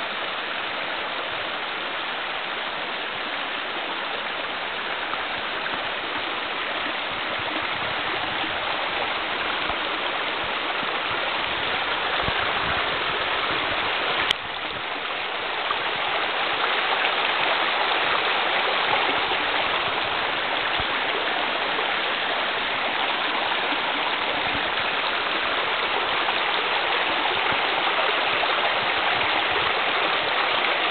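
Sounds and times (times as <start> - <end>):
creek water running over rocks: 0.0 - 30.9.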